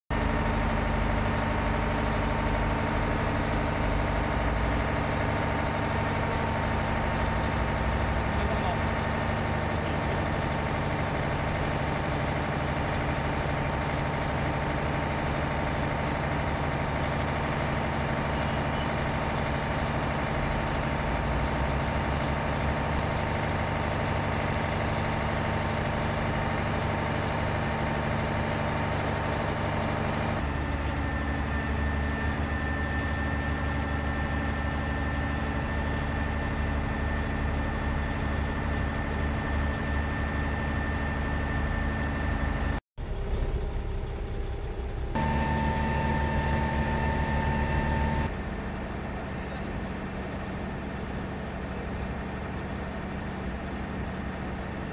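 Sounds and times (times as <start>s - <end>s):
diesel engine running: 0.0s - 54.9s
high steady whine: 43.8s - 48.6s.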